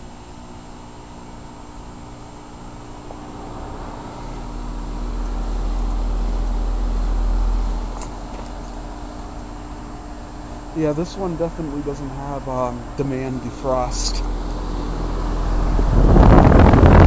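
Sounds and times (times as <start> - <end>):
heat pump humming: 0.0 - 17.0
deep rumble: 2.9 - 13.0, 13.8 - 17.0.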